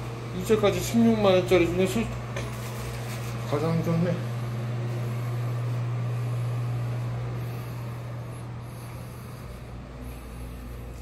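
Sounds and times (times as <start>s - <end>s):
ventilation fan humming: 0.0s - 11.0s.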